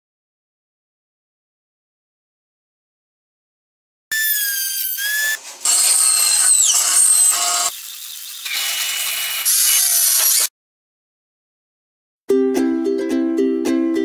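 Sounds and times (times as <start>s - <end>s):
drill driving screw into wood: 4.1s - 10.5s
power tool cutting: 4.1s - 10.5s
router whining: 4.1s - 10.5s
welder crackling: 4.4s - 10.5s.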